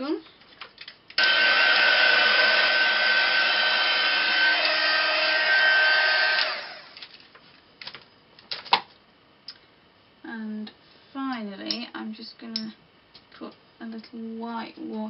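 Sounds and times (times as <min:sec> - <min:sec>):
heat gun blowing with high whine: 0:01.2 - 0:07.0.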